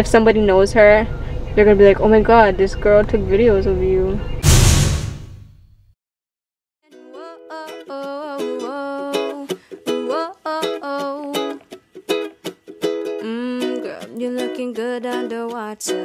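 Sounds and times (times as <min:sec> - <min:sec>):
woman singing slow melody: 0:06.9 - 0:11.6, 0:13.2 - 0:16.0.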